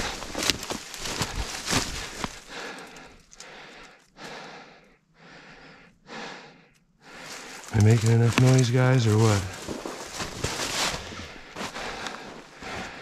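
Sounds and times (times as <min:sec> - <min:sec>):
footsteps crunching dry leaves: 0:00.0 - 0:02.5, 0:07.2 - 0:12.6.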